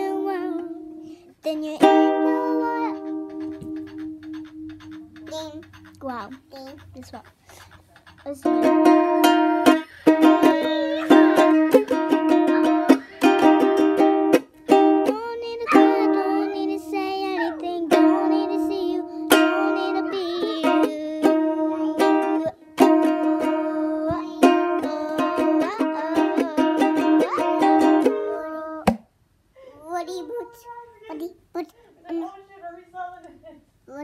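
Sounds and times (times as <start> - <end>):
girl singing: 0.0 - 3.7, 8.2 - 28.9
ukulele strumming: 0.0 - 4.8, 8.4 - 29.0.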